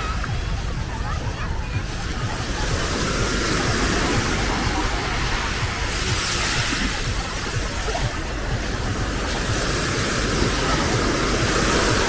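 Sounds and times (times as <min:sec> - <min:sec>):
small waves breaking on shore: 0:00.0 - 0:12.0
wind rumbling on microphone: 0:00.0 - 0:12.0.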